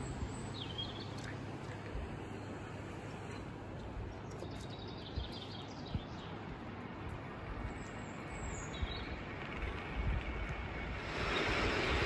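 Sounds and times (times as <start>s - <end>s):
outdoor rushing noise: 5.9s - 12.0s.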